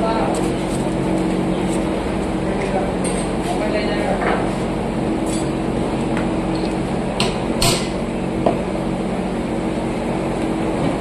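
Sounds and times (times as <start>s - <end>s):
low mechanical hum: 0.0s - 11.0s
hammer striking metal: 7.2s - 8.0s.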